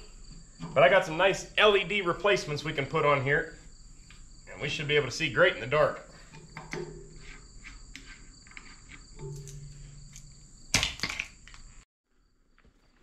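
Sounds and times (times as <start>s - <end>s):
insects buzzing: 0.0s - 13.0s
loud metal clanks: 6.3s - 7.4s, 9.2s - 11.3s.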